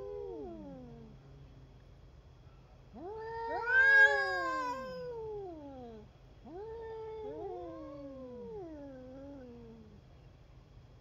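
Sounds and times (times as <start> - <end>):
cats yowling: 3.0 - 9.5.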